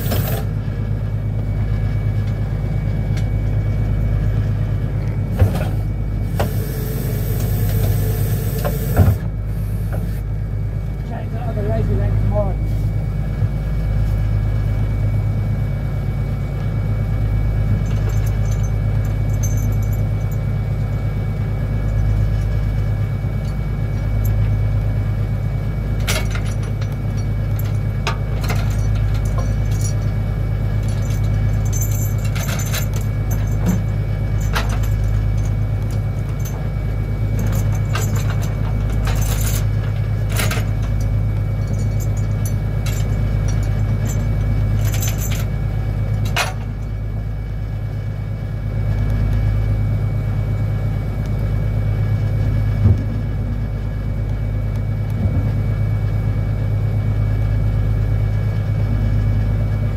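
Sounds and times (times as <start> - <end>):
boat engine droning: 0.0 - 59.9
chain and deck gear clinking: 17.8 - 20.4, 30.8 - 36.6, 37.4 - 45.6.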